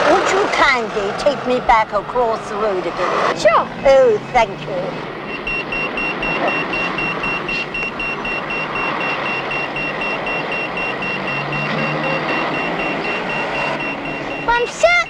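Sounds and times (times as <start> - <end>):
road traffic noise: 0.0 - 15.0
crossing signal short high beeps: 5.2 - 15.0.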